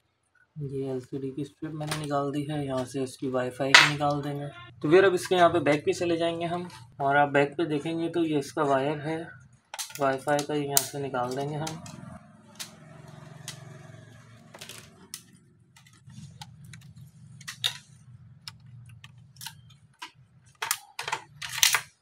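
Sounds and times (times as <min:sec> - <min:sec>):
plastic parts clicking and clattering: 0:01.8 - 0:02.9, 0:03.7 - 0:04.2, 0:09.6 - 0:13.7, 0:14.5 - 0:22.0.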